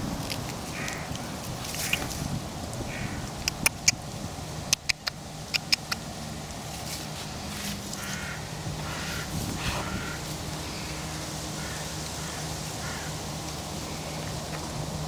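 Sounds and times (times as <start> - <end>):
steady low hum: 0.0 - 15.0
harsh crow-like bird calls: 0.7 - 2.1, 2.9 - 3.3, 8.0 - 14.3.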